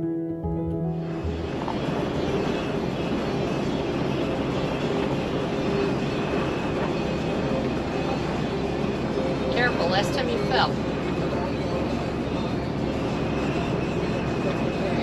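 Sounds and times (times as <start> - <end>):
road and drivetrain noise: 1.0 - 7.5.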